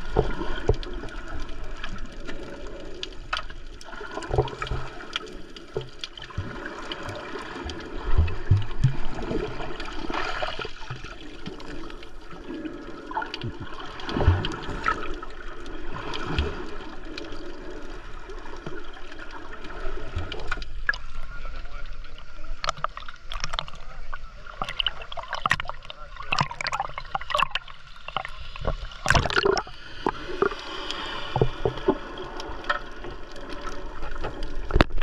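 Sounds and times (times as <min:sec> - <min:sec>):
water sloshing and gurgling: 0:00.0 - 0:35.0
low thumps: 0:08.1 - 0:09.1.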